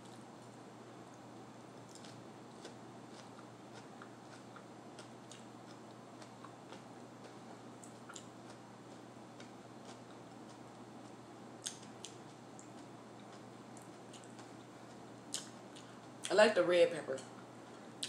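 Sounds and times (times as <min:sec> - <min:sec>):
steady low hiss: 0:00.0 - 0:18.0
person chewing: 0:01.8 - 0:16.3.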